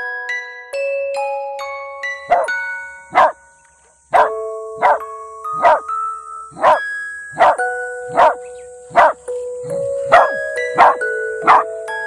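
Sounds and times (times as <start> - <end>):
music with mallet notes: 0.0 - 12.0
dog barking: 2.3 - 2.5, 3.1 - 3.4, 4.1 - 5.0, 5.6 - 5.8, 6.5 - 9.2, 10.0 - 11.7.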